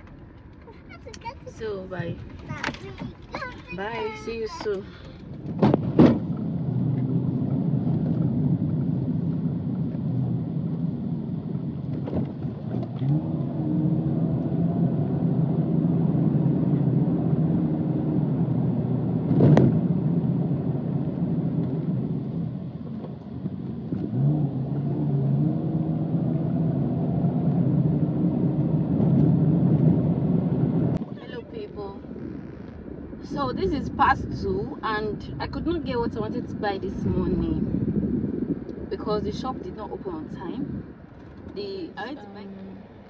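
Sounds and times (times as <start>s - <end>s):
car engine: 0.0s - 43.0s
road noise inside car: 0.0s - 43.0s
sharp thump: 5.5s - 6.4s.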